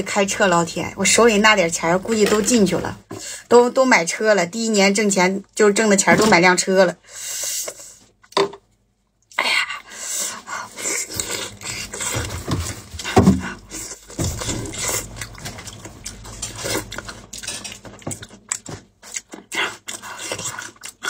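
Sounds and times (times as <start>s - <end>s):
wet chewing and lip smacking: 14.4s - 21.0s.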